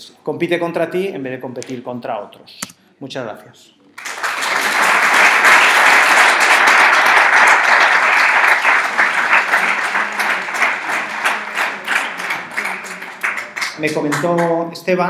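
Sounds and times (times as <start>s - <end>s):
audience applauding: 4.0s - 14.6s.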